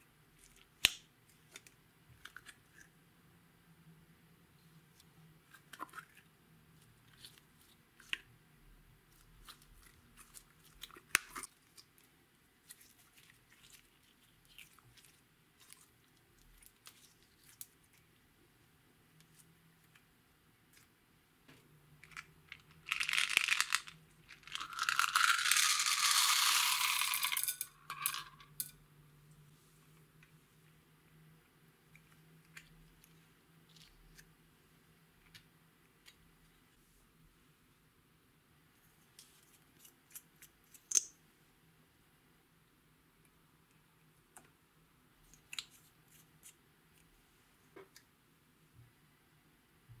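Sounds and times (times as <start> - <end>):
beads poured into glass bowl: 22.6 - 28.7.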